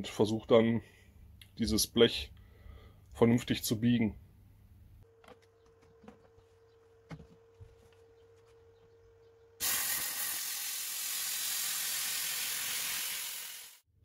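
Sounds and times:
plasma cutter hissing: 9.6 - 13.8.

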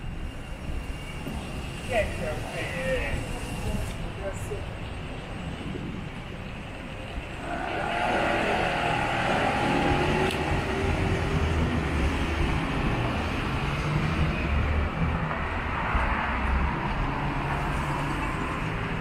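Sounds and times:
vehicles passing close by: 7.0 - 19.0.

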